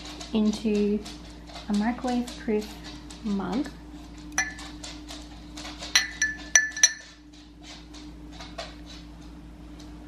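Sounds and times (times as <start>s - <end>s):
bowl clinking on ceramic mug: 4.4s - 4.6s, 6.0s - 7.1s.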